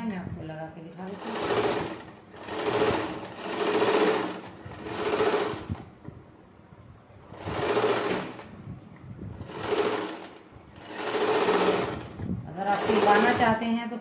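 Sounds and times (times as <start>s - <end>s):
sewing machine stitching: 1.0s - 5.9s, 7.2s - 8.6s, 9.3s - 13.6s.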